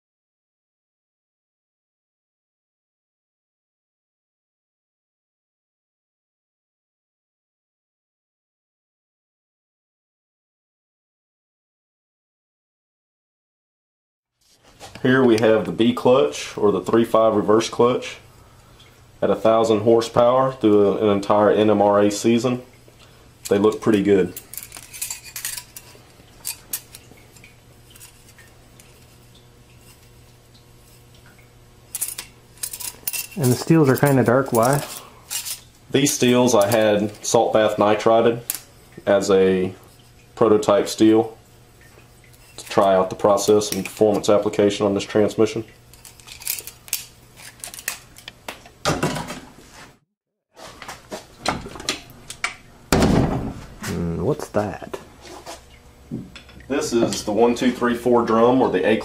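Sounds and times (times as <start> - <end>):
metal drums clinking and knocking: 31.9 - 36.8.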